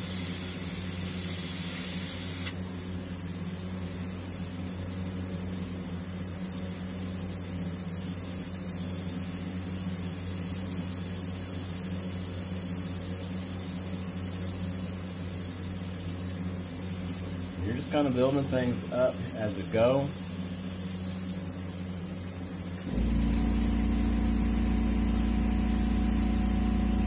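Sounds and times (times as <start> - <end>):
airbrush spraying: 0.0 - 27.0
low hum: 22.9 - 27.0.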